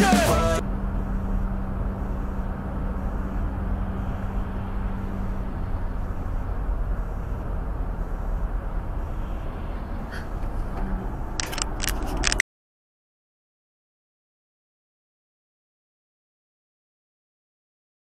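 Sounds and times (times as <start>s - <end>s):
car road noise at highway speed: 0.0s - 12.4s
low steady hum: 0.6s - 12.4s.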